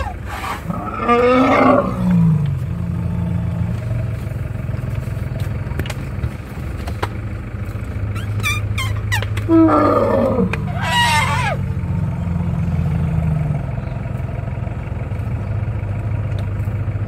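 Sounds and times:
elephant roaring: 0.0s - 3.9s, 9.4s - 13.6s
jeep engine idling: 0.0s - 17.0s.

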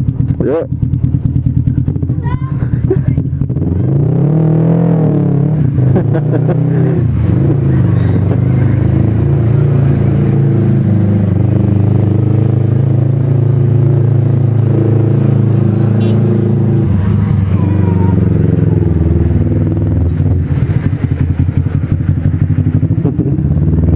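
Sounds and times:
motorcycle engine accelerating: 0.0s - 23.9s.

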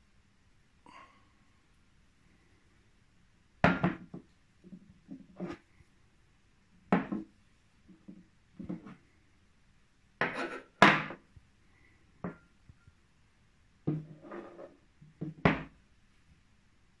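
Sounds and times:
objects knocking on wooden desk: 6.9s - 7.3s, 13.9s - 14.6s, 15.2s - 15.7s.

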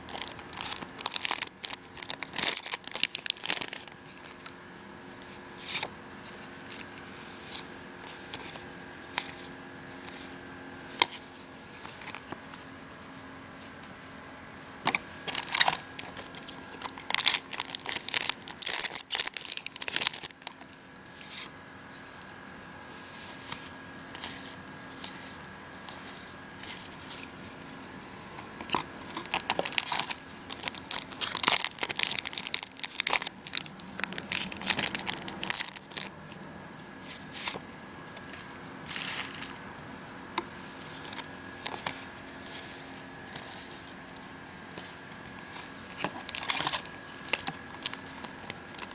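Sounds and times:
cards being handled: 0.0s - 4.5s, 14.9s - 21.5s
wrappers tearing and crinkling: 0.0s - 4.5s, 15.2s - 20.7s, 28.7s - 36.2s, 38.3s - 39.6s, 45.4s - 48.9s.

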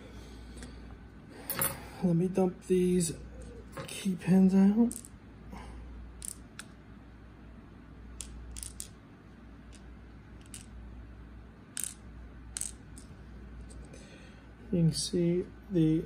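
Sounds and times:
light metallic clicks of pins dropping: 1.4s - 1.9s, 8.2s - 9.0s, 11.8s - 12.0s.

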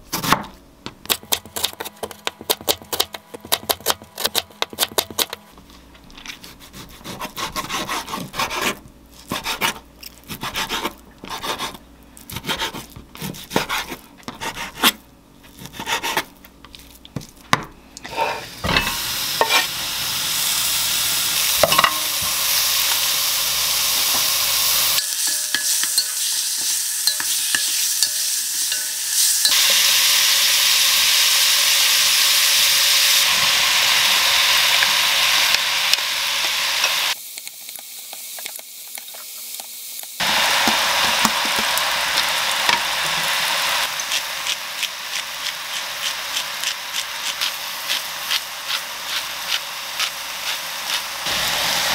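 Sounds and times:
knife chopping on wooden board: 0.1s - 0.5s, 12.3s - 15.0s
beef sizzling in pot: 18.0s - 51.9s.

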